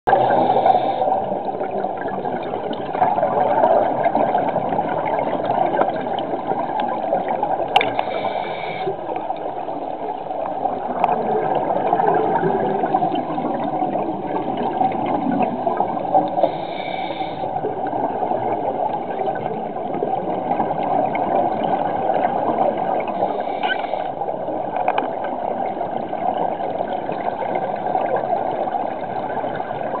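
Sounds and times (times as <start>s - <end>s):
muffled underwater water rush: 0.1s - 30.0s
regulator breathing hisses: 0.2s - 1.3s, 7.9s - 9.0s, 16.4s - 17.6s, 23.2s - 24.2s.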